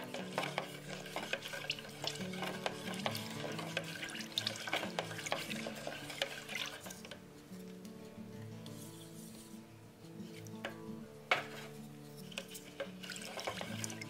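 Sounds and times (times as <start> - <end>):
sticks knocking against bucket: 0.0 - 7.2
sticks stirring thick paint: 0.0 - 14.0.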